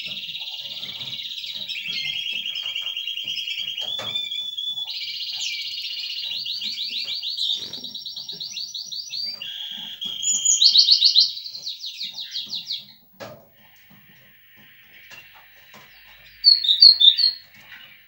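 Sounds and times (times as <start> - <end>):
bird singing trills: 0.0 - 13.1, 13.7 - 18.0.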